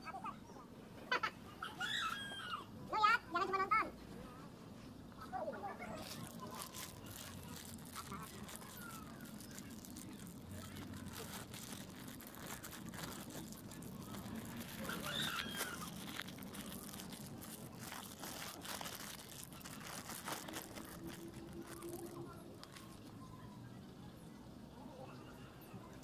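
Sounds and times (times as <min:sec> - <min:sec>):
plastic bag crinkling: 0:05.9 - 0:23.2.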